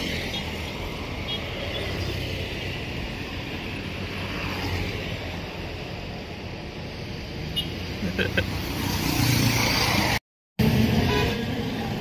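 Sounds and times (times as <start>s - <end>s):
rush of tyres and engines: 0.0s - 12.0s
car passing: 2.0s - 5.6s.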